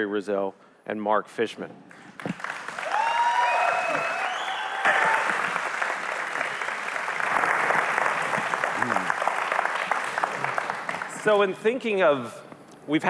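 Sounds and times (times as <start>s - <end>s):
audience applauding: 2.2s - 11.6s.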